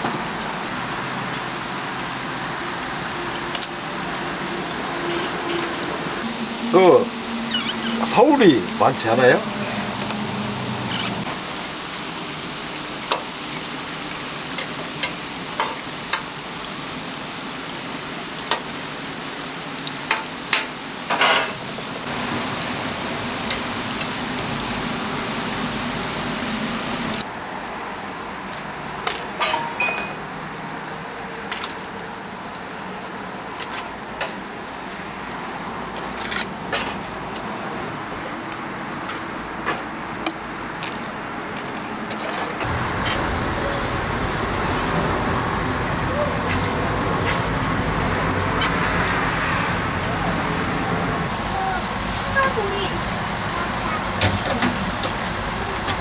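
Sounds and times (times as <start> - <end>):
churros sizzling in hot oil: 0.1 - 27.3, 42.6 - 56.0.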